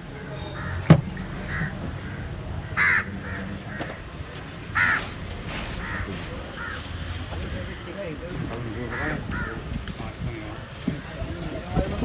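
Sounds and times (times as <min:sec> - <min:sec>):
crow cawing: 0:00.5 - 0:04.0, 0:04.7 - 0:06.9, 0:08.8 - 0:09.6.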